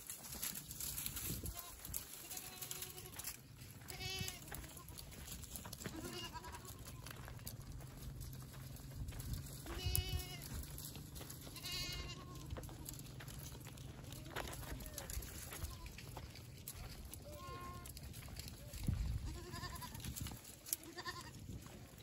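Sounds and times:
goats bleating: 0:01.3 - 0:07.6, 0:09.6 - 0:16.2, 0:17.0 - 0:21.5.

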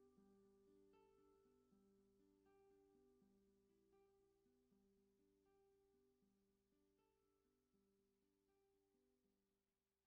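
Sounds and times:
faint plucked string music: 0:00.0 - 0:06.3.

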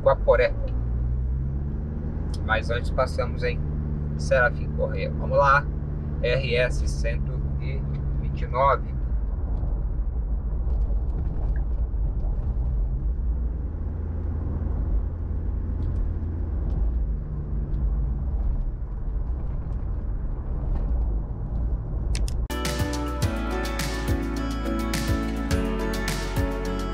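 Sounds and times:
car engine: 0:00.0 - 0:26.9
tyres rumbling on asphalt: 0:00.0 - 0:26.9.

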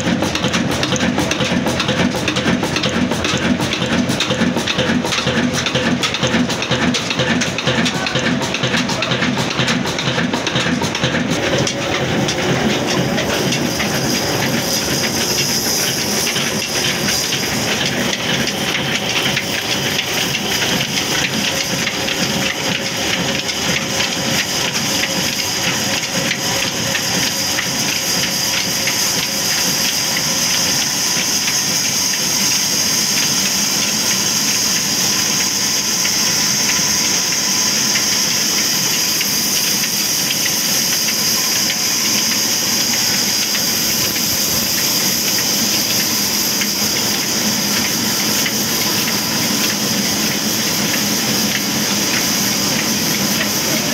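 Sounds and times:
diesel engine rumble: 0:00.0 - 0:29.4.

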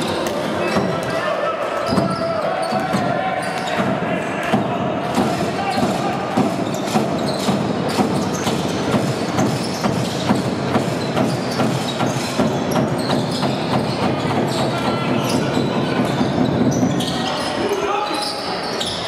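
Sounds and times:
arena crowd noise: 0:00.0 - 0:19.0
basketball bouncing on hardwood: 0:03.7 - 0:15.4.

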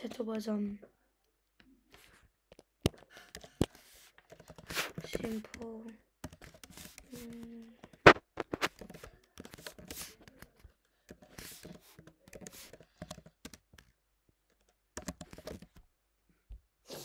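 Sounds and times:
computer keyboard typing: 0:02.5 - 0:15.8.

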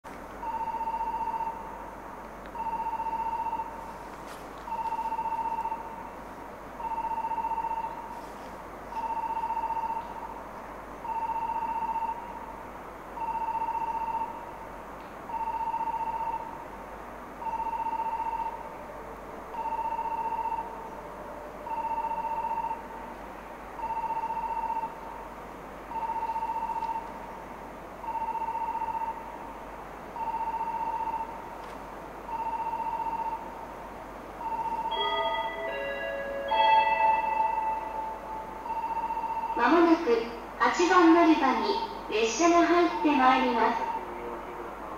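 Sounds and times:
electronic warning beeps: 0:00.4 - 0:01.7, 0:02.6 - 0:03.8, 0:04.7 - 0:06.0, 0:06.8 - 0:08.1, 0:09.0 - 0:10.4, 0:11.0 - 0:12.4, 0:19.6 - 0:20.7, 0:23.8 - 0:25.0, 0:25.9 - 0:27.1, 0:30.2 - 0:31.4, 0:32.3 - 0:33.5, 0:34.4 - 0:35.6, 0:37.4 - 0:40.0, 0:43.5 - 0:44.1.

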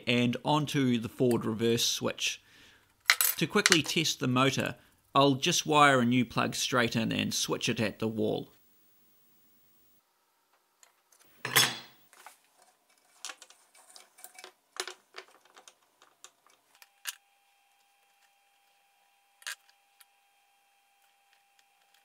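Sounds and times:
tools handled on wooden workbench: 0:11.2 - 0:16.7
small metallic clicks and clatters: 0:12.6 - 0:17.2.

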